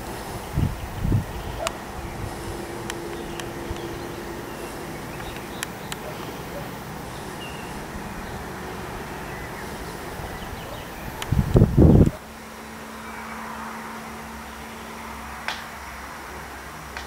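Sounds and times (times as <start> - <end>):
wind noise on microphone: 0.0 - 12.2
faint steady hum: 0.0 - 17.0
sharp clicks: 2.8 - 4.0, 5.1 - 6.4, 11.2 - 12.2.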